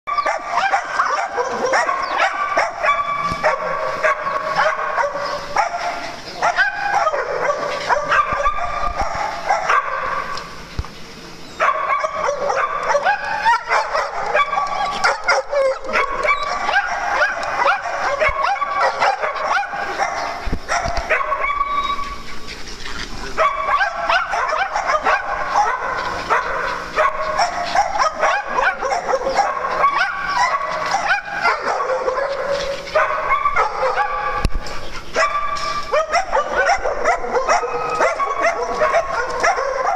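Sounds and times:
small dogs barking and yipping: 0.1 - 10.5, 11.5 - 39.9.

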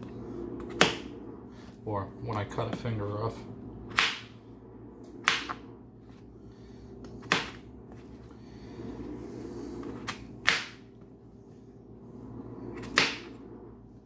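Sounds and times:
steady low hum: 0.0 - 14.0
knife chopping on plastic board: 3.9 - 4.3, 7.2 - 7.6, 10.1 - 10.8.

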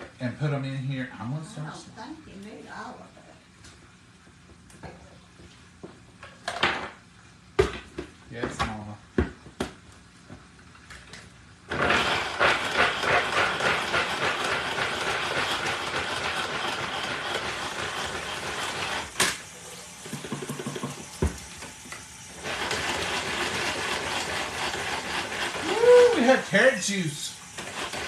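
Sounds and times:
manual food chopper whirring: 11.7 - 28.0.

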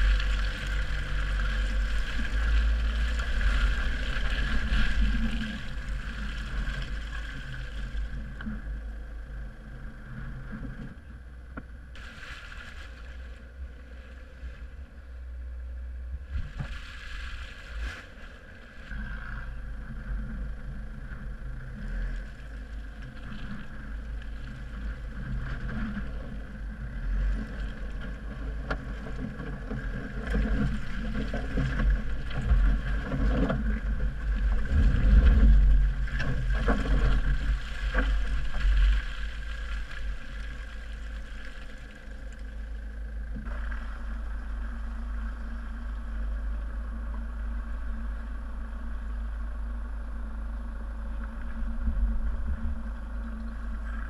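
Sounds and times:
diesel engine running: 0.0 - 16.6, 17.5 - 54.0
knocks and thumps from rough ground: 27.5 - 41.4.

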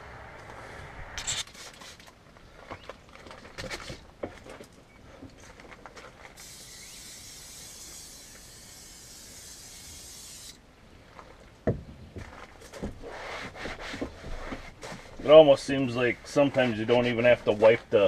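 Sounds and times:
aerosol can spraying hiss: 6.4 - 10.6
rag rubbing over plastic: 12.8 - 18.0.

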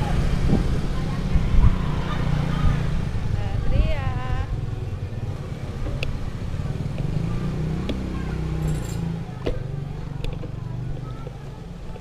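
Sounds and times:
engine humming: 0.0 - 12.0
bicycle clicking and rattling: 8.6 - 9.2.

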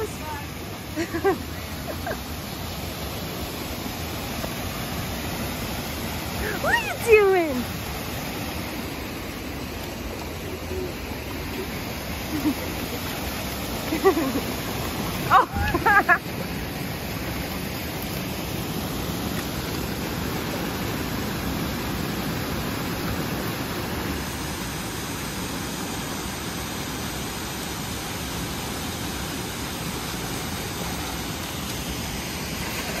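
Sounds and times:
shallow creek: 0.0 - 33.0
waterfall rushing: 0.0 - 33.0.

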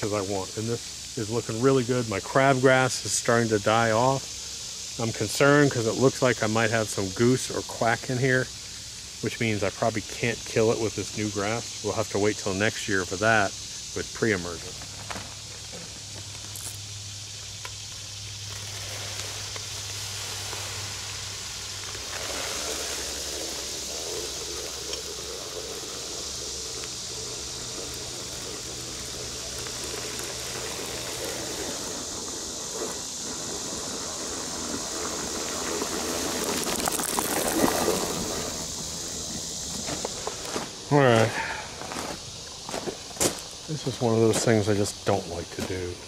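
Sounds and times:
high insect drone: 0.0 - 46.0
spreader flinging granules: 10.2 - 46.0.

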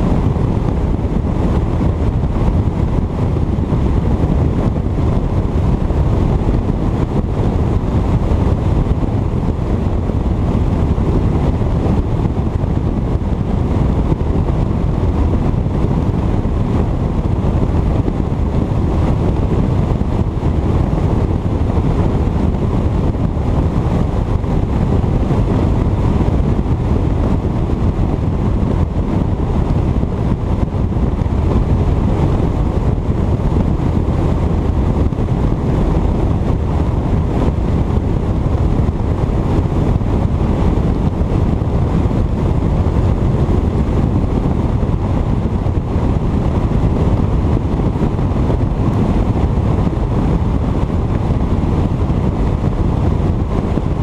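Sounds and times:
outboard motor drone: 0.0 - 54.0
wind rush on microphone: 0.0 - 54.0.

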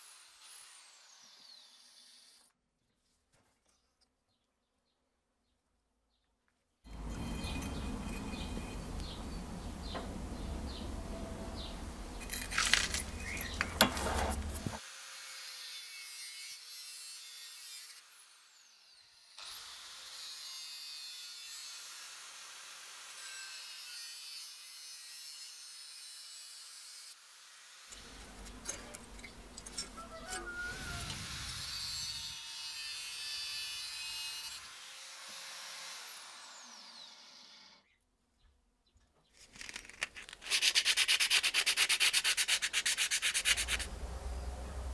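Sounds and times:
angle grinder grinding steel: 6.9 - 14.8, 27.9 - 37.0
metal tube handling in vise: 12.2 - 14.8, 28.2 - 30.5.

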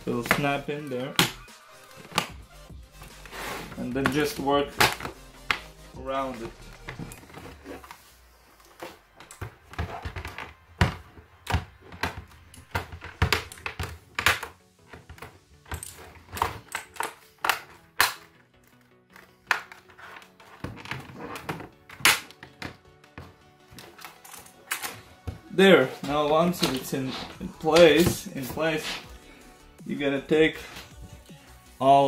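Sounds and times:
plastic clips snapping: 1.2 - 2.4, 9.2 - 18.5, 21.9 - 22.8.

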